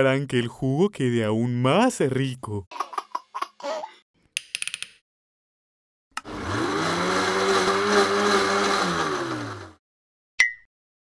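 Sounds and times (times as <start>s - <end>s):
blender motor running: 6.2s - 9.8s.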